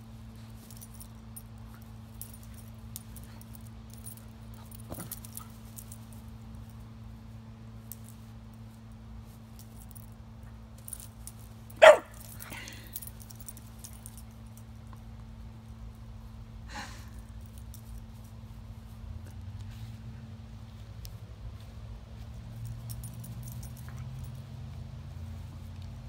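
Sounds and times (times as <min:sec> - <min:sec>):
dog barking: 0:11.8 - 0:12.2.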